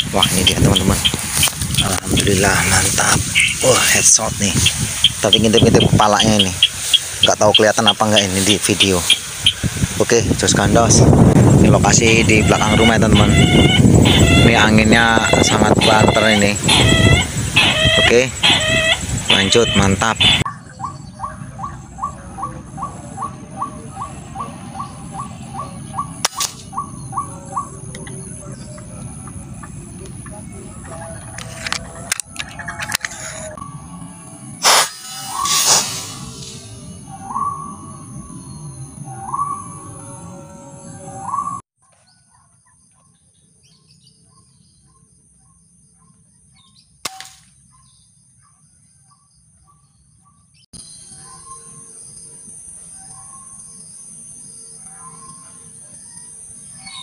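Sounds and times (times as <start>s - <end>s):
bird calling: 0.0s - 10.1s, 11.9s - 42.8s, 49.6s - 52.0s, 54.6s - 57.0s
wind rumble on microphone: 0.0s - 34.6s
steady high whine: 21.5s - 41.4s
air rifle shot: 26.2s - 26.7s, 34.6s - 36.4s, 47.0s - 47.5s
sharp crack: 26.2s - 26.7s, 34.6s - 36.6s, 47.0s - 47.6s.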